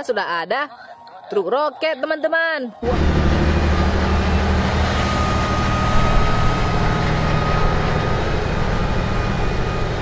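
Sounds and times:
thin high whine: 2.8s - 10.0s
truck diesel engine running: 2.8s - 10.0s.

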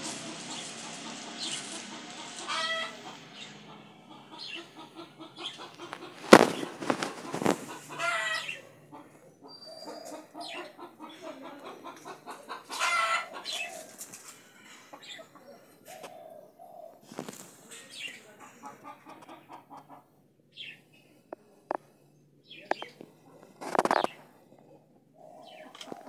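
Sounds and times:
chicken drawn-out calls: 0.0s - 17.5s, 25.2s - 26.0s
chickens clucking: 0.0s - 26.0s.

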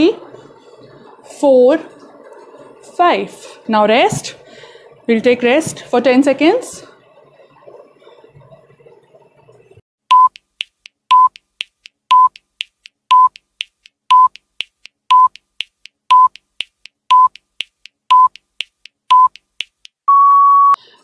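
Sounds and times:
countdown timer beeping: 10.1s - 20.8s.

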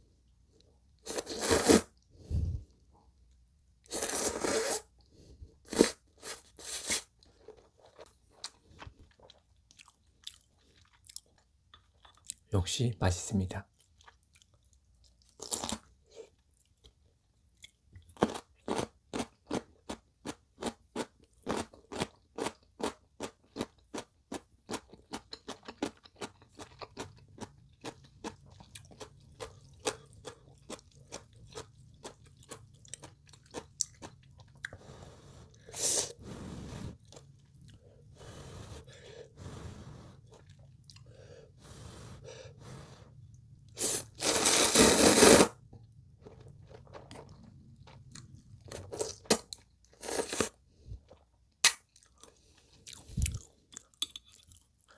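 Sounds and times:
crunchy radish kimchi being chewed: 5.7s - 12.5s, 13.6s - 35.9s, 40.2s - 41.2s, 45.8s - 54.9s.

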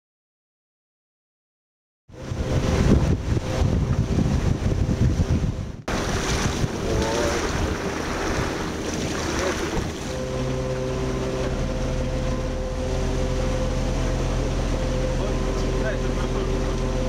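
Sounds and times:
water rushing along boat hull: 2.1s - 17.0s
wind on microphone: 2.2s - 11.4s
electric motors humming: 5.9s - 17.0s.

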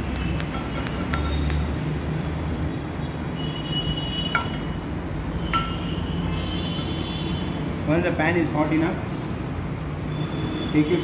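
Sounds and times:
frying pan clinking on metal grate: 4.4s - 4.7s, 5.5s - 5.9s.

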